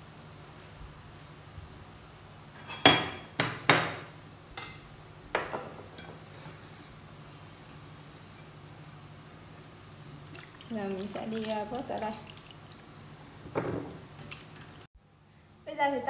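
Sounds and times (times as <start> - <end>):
knife and dishes clinking: 2.6 - 3.4, 4.6 - 6.7.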